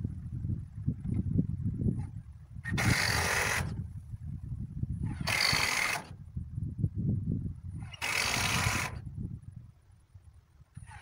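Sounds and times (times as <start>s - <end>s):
low rumble: 0.0s - 2.6s
cordless power driver: 2.7s - 3.8s, 7.8s - 9.0s.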